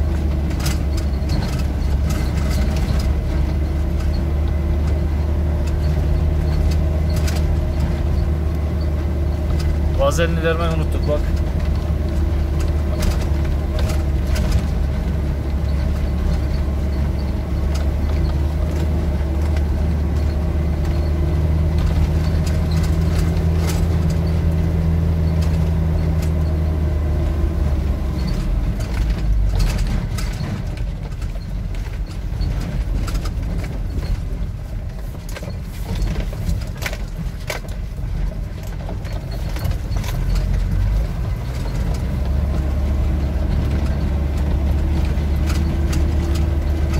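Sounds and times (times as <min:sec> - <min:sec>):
vehicle engine running: 0:00.0 - 0:46.9
stones knocking and cab rattling: 0:09.3 - 0:26.4.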